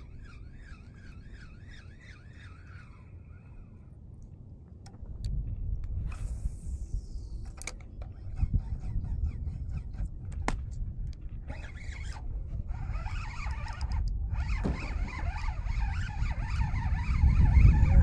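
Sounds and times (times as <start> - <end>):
fishing reel buzzing: 0.0 - 3.8, 6.1 - 10.1, 11.5 - 18.0
wind rumble on microphone: 0.0 - 18.0.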